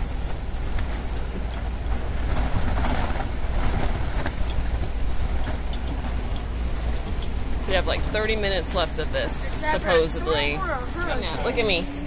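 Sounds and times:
canvas walls flapping: 0.0 - 6.3
heavy wind rumble: 0.0 - 12.0.

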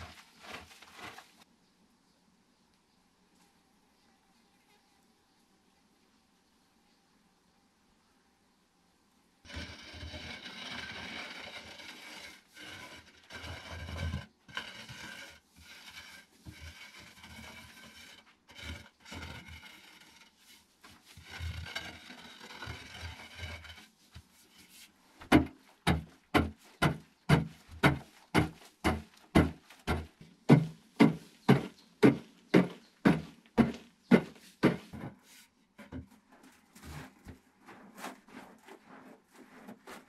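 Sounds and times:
digging tool scraping dirt: 0.0 - 1.4, 9.5 - 35.4
digging tool chopping ground: 25.3 - 35.0.

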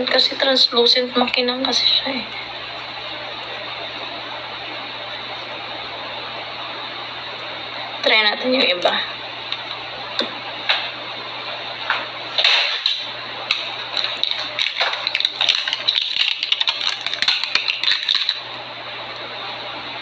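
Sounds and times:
plastic crinkling and clicking: 12.4 - 18.5.

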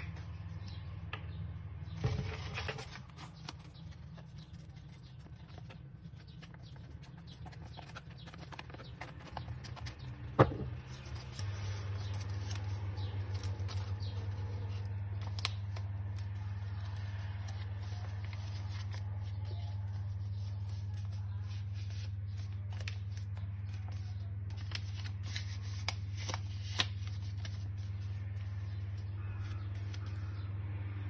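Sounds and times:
low steady hum: 0.0 - 31.0
stiff paper rustling: 1.9 - 30.4.

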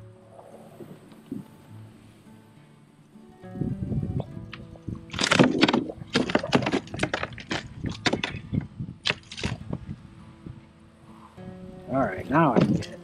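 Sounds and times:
fish thrashing on plastic deck: 5.0 - 9.7.

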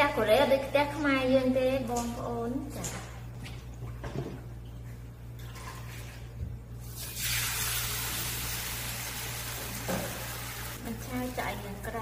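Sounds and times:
batter sizzling in a frying pan: 7.0 - 10.8.

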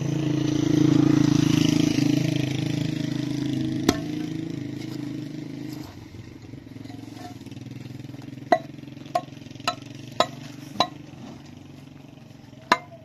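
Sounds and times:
engine hum: 0.0 - 13.0
hammer striking concrete block: 3.9 - 4.3, 8.5 - 11.0, 12.6 - 13.0.

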